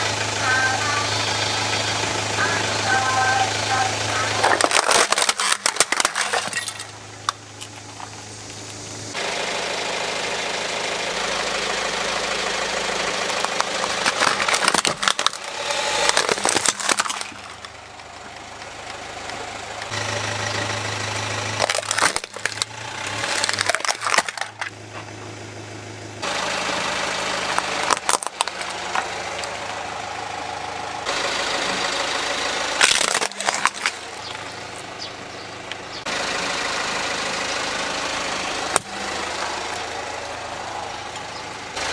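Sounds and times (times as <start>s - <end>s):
car engine idling: 0.0s - 41.9s
plastic toys cracking under tyre: 4.2s - 8.8s, 13.1s - 17.8s, 21.6s - 24.8s, 27.4s - 29.6s, 32.8s - 34.9s.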